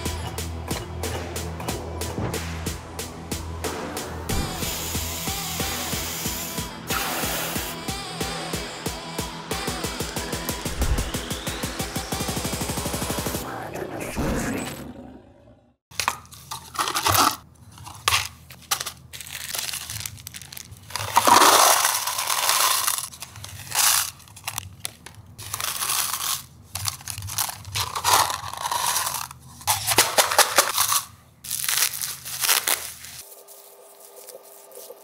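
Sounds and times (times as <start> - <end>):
washers and nuts rattling into cups: 16.0 - 31.1
plastic zip bags crinkling: 16.7 - 29.4.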